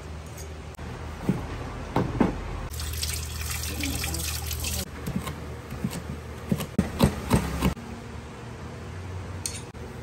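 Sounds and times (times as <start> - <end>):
cleaver chopping on wooden board: 5.1 - 7.8.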